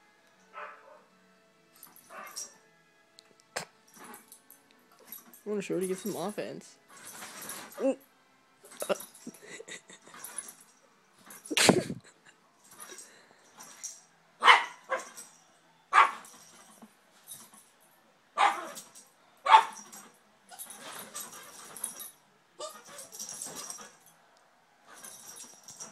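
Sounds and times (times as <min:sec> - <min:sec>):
small dogs barking: 0:02.1 - 0:02.5, 0:14.4 - 0:15.3, 0:15.9 - 0:16.3, 0:18.4 - 0:19.9
dogs scuffling: 0:18.4 - 0:24.1.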